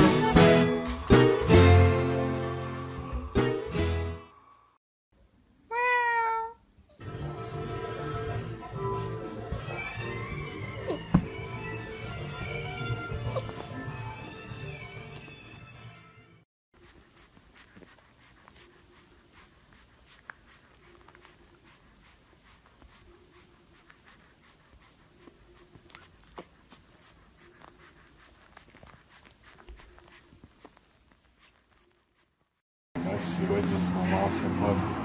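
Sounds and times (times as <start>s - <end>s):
music: 0.0s - 4.6s, 7.0s - 16.4s
puppy sucking on a pacifier: 16.8s - 32.6s.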